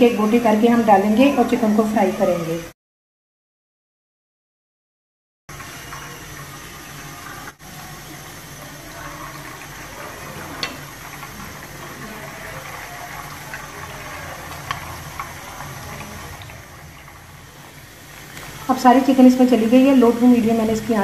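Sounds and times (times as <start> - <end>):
chicken sizzling in hot oil: 5.5 - 21.0
oil popping: 7.5 - 19.3.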